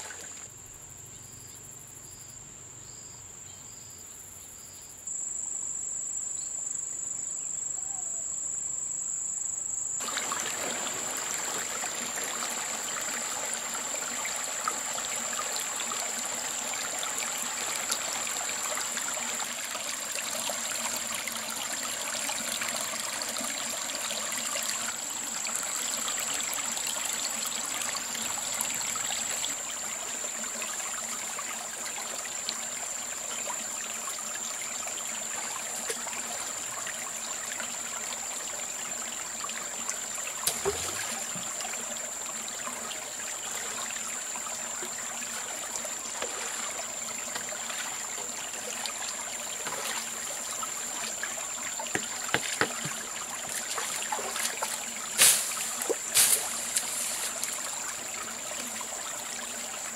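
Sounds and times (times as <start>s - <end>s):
stream water flowing: 0.0s - 0.6s, 10.0s - 59.9s.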